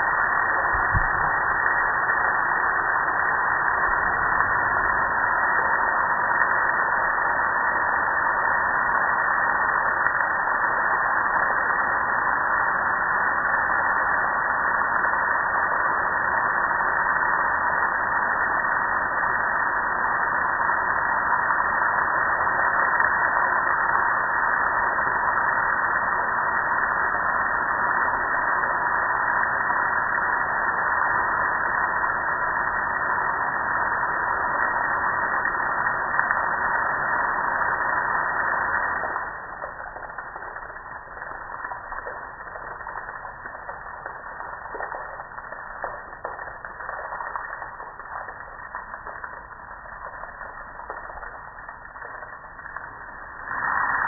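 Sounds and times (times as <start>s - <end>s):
water spraying from hose on metal: 34.0s - 54.0s.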